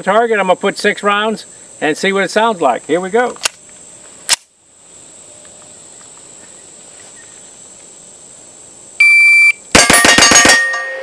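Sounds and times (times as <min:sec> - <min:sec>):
shot timer beep: 0:09.0 - 0:09.6
rapid pistol shots: 0:09.7 - 0:10.7.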